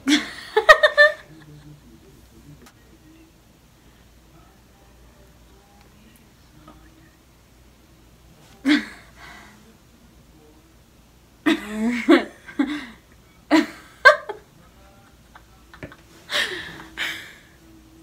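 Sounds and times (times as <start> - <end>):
girls laughing and giggling: 0.0 - 1.5.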